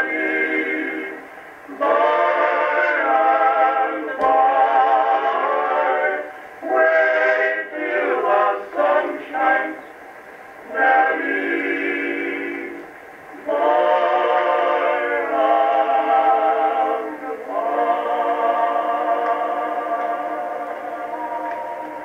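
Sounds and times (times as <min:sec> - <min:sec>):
male vocal quartet singing: 0:00.0 - 0:09.9, 0:10.7 - 0:22.0.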